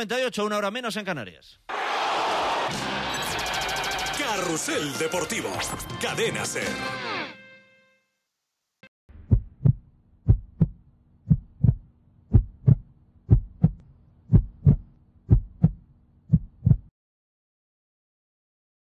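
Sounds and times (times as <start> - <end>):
heartbeat thumps: 9.1 - 16.9.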